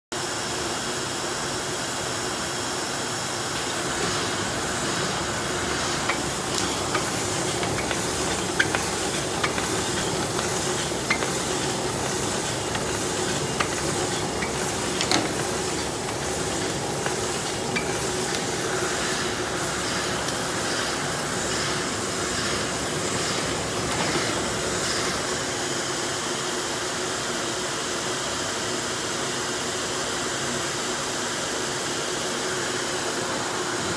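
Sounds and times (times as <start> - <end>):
labeling machine humming: 3.1 - 25.9
bottles clicking and knocking: 6.0 - 18.5.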